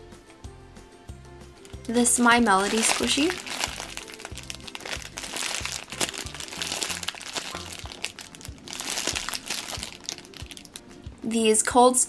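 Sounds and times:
plastic bag crinkling: 1.7 - 10.8.

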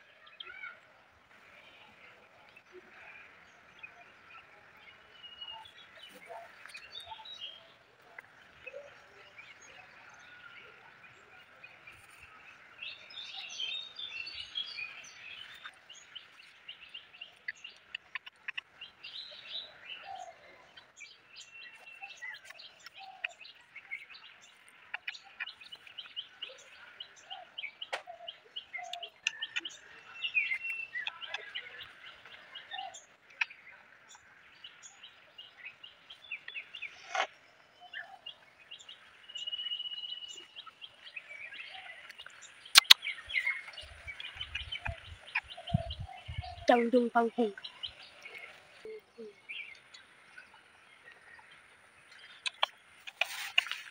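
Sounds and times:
small birds chirping: 0.0 - 53.9
sharp clicks: 42.1 - 43.0, 52.2 - 53.8.

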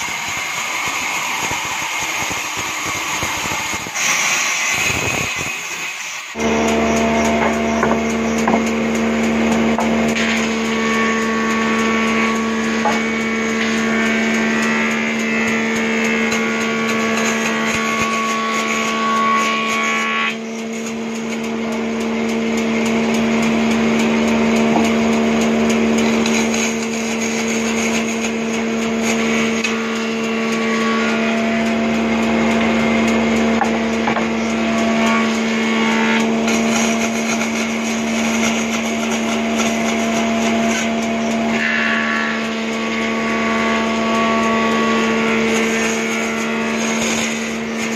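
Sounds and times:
band saw motor hum: 0.0 - 47.9
saw blade cutting wood: 0.0 - 47.9.

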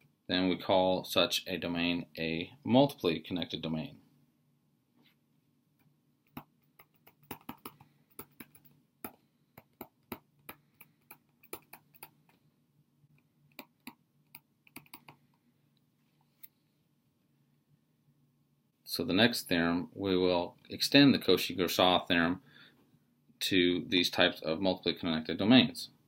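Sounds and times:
stylus tapping on tablet screen: 5.8 - 12.4, 13.1 - 15.4.

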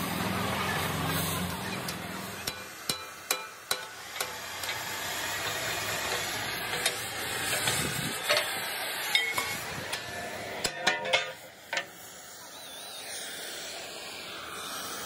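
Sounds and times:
cutting torch hissing: 0.0 - 15.0
hammer strikes on steel: 2.4 - 4.8, 10.6 - 12.0.

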